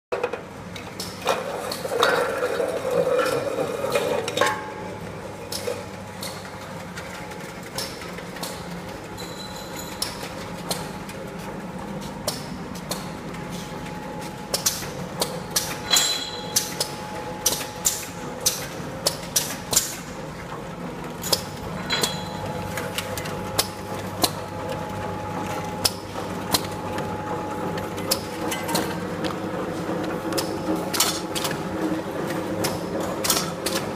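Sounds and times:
machine hum: 1.9s - 33.9s
tin cans clanking on conveyor: 14.5s - 20.1s, 21.2s - 24.5s, 27.7s - 33.9s.

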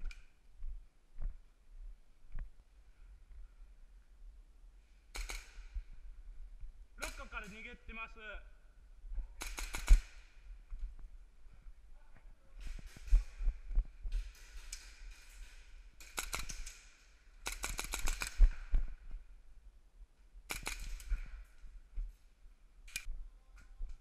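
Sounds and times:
airsoft gun bursts: 9.4s - 10.2s, 17.4s - 18.5s.

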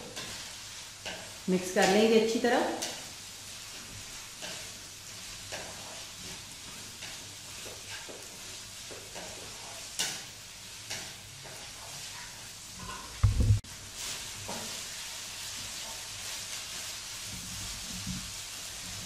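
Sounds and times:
chicken and vegetables sizzling: 0.0s - 19.0s
wooden spatula scraping wok: 0.0s - 19.0s
dull low thump: 13.2s - 13.6s.

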